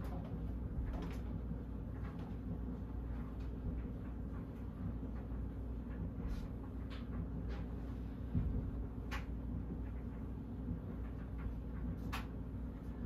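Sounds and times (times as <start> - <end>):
ceiling fan spinning down: 0.0 - 13.0.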